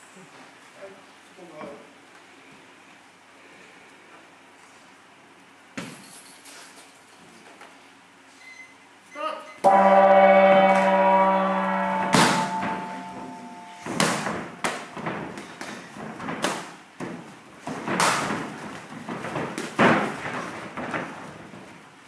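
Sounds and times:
gong ringing: 9.6s - 14.5s.

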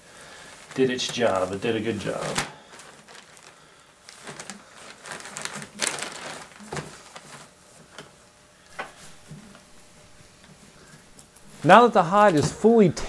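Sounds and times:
plastic sheeting rustling: 0.0s - 13.0s.

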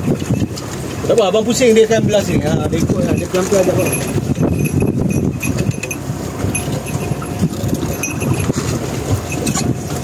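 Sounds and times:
sea rushing around boat: 0.0s - 10.0s
wind buffeting microphone: 0.0s - 10.0s.

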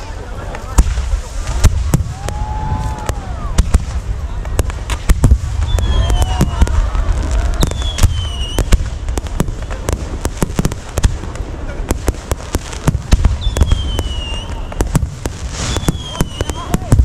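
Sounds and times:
fireworks bangs and crackles: 0.0s - 17.0s
falling whistles: 5.6s - 6.8s, 7.6s - 8.8s, 13.4s - 14.9s, 15.6s - 16.8s.

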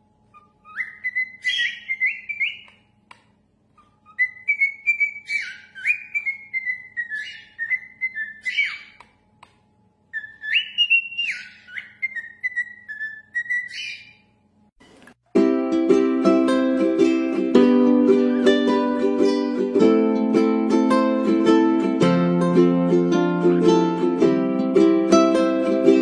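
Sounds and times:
cockatiel whistling a tune: 0.3s - 2.8s, 3.8s - 9.0s, 10.1s - 14.2s.

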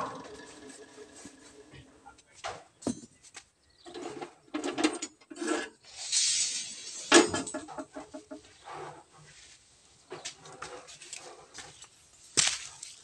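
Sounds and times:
metal scraping: 0.0s - 1.8s, 3.9s - 9.2s
steel rods clanking: 4.6s - 8.4s
metal rattle: 6.0s - 8.3s.

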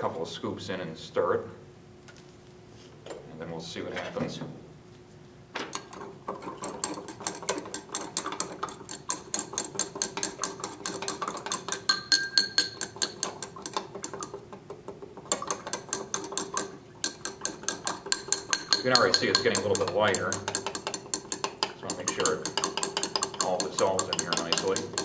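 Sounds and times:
glass rod clinking in beaker: 11.5s - 13.5s, 16.4s - 25.0s.

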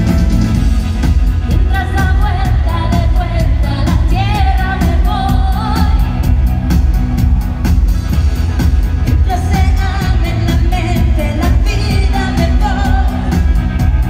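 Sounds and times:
pop-dance music over sound system: 0.0s - 14.0s
person singing: 9.2s - 14.0s.

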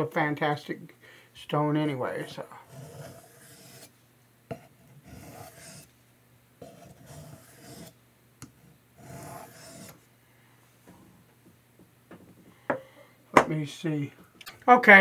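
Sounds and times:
knife rasping on sharpening stone: 2.6s - 3.9s, 4.6s - 5.9s, 6.6s - 8.0s, 9.0s - 10.0s.

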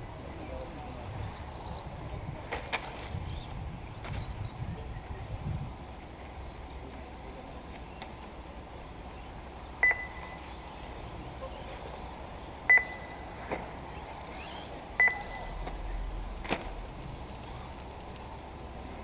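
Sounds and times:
short electronic beeps: 9.8s - 10.5s, 12.7s - 13.3s, 14.4s - 15.6s.

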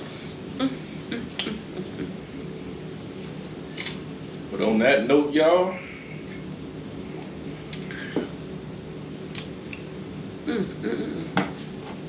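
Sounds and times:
murmured voice: 10.5s - 11.4s.

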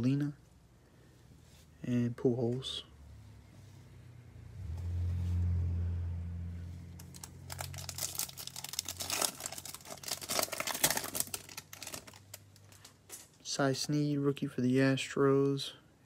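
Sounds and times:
low rumble: 2.9s - 10.2s
foil wrapper crinkling and tearing: 7.0s - 13.0s.

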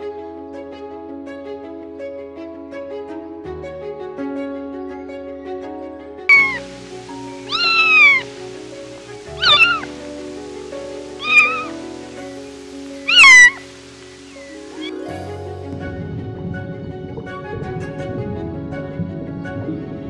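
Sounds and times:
soft background music: 0.0s - 20.0s
kittens meowing: 6.3s - 6.7s, 7.3s - 10.1s, 11.0s - 12.2s, 13.0s - 13.7s, 14.6s - 15.1s.

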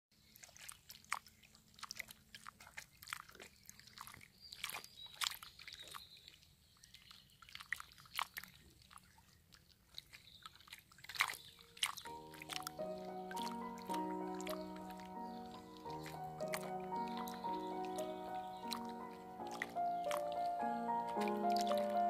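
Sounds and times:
water splashing over pebbles: 0.1s - 22.0s
high chirps: 12.1s - 22.0s
music: 12.1s - 22.0s.

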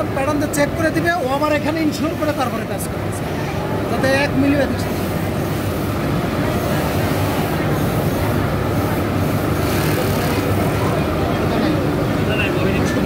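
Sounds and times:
industrial sewing machines running: 3.9s - 13.0s.

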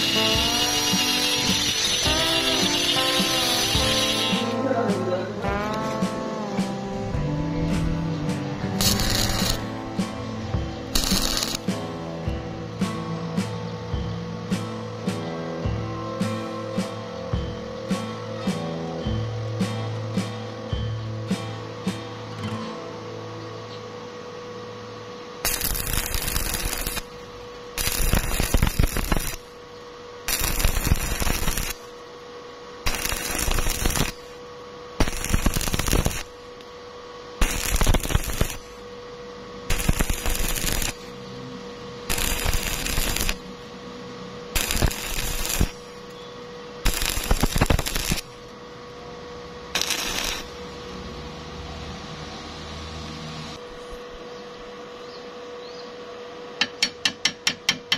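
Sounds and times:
welding arc crackling: 0.0s - 4.6s, 8.8s - 9.9s, 10.9s - 11.8s, 25.4s - 29.6s, 30.2s - 32.0s, 32.7s - 38.9s, 39.6s - 41.2s, 42.0s - 43.7s, 44.4s - 46.2s, 46.8s - 48.6s, 49.7s - 50.9s.

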